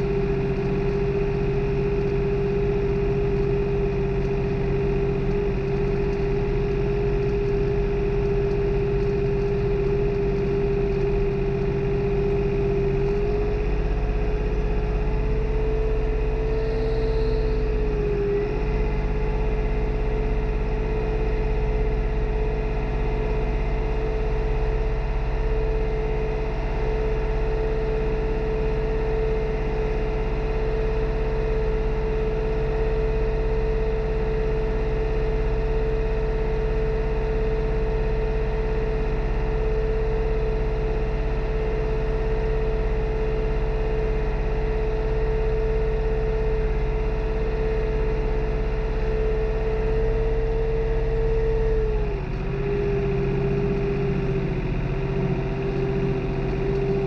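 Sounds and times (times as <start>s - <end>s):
steady whining tone: 0.0s - 57.0s
tractor engine running under load: 0.0s - 57.0s.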